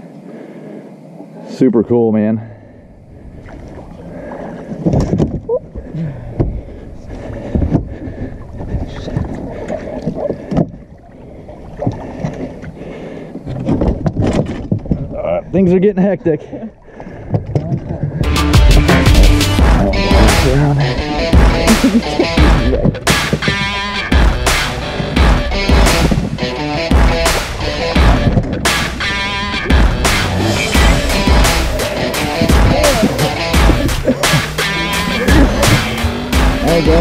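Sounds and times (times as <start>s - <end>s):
wind rumbling on microphone: 2.9s - 12.8s, 13.4s - 15.5s
energetic music with heavy drum beat: 18.2s - 37.0s
gear knocking and rattling: 29.7s - 37.0s.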